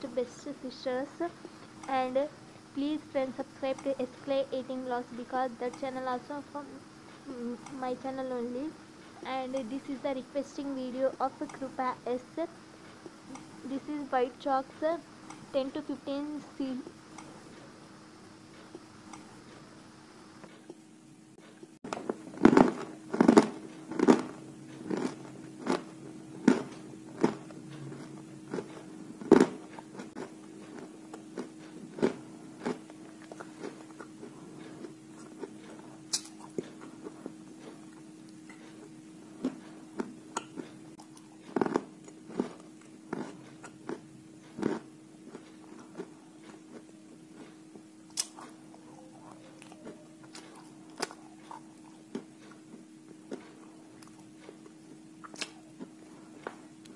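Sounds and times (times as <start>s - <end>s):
chalk crunching when chewed: 22.0s - 38.7s, 39.4s - 56.0s.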